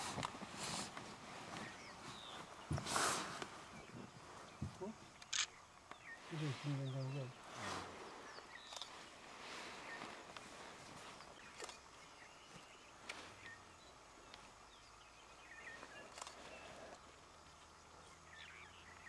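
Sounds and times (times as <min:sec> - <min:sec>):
sharp clicks: 0:05.2 - 0:06.0.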